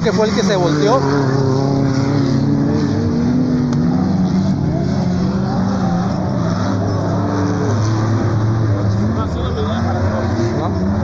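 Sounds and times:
race vehicle engines revving: 0:00.0 - 0:11.0.

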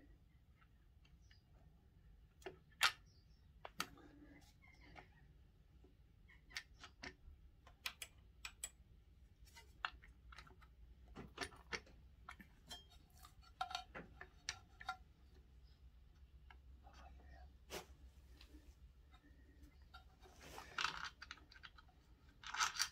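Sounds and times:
faint metallic clicks and taps: 0:05.8 - 0:17.4.

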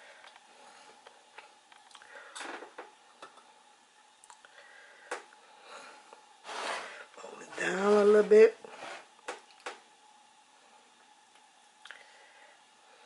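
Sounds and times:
pastry rubbing in glass dish: 0:06.4 - 0:09.1.

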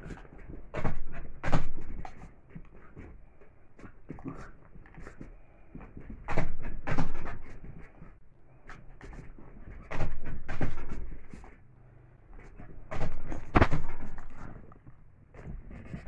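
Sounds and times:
dog scuffling: 0:12.4 - 0:14.7.

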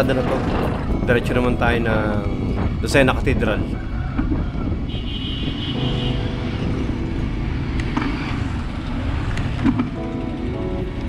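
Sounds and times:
wind on microphone: 0:00.0 - 0:10.1
bicycle road rumble: 0:00.0 - 0:11.0
passing motorcycle engines: 0:04.5 - 0:11.0.

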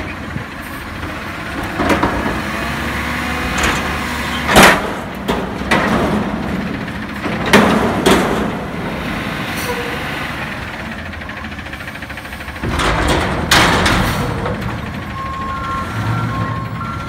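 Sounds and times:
diesel engine under hydraulic load: 0:00.0 - 0:17.0
metal dumpster banging: 0:01.4 - 0:10.1, 0:12.5 - 0:17.0.

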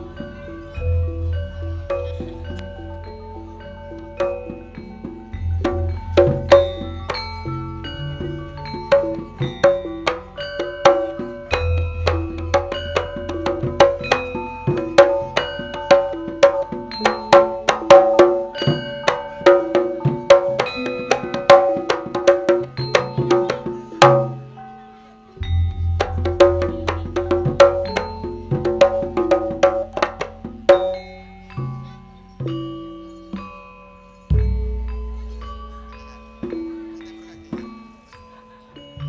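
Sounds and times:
struck metal notes ringing: 0:00.0 - 0:39.0
low drum beats: 0:04.2 - 0:24.5, 0:25.4 - 0:33.6, 0:34.3 - 0:37.9.

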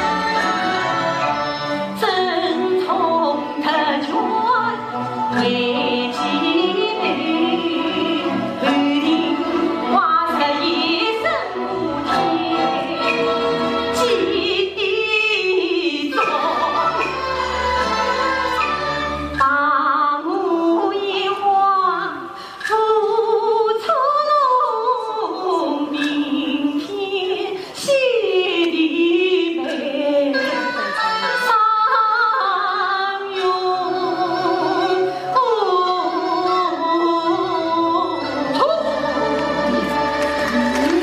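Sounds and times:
woman singing opera: 0:00.0 - 0:41.0.

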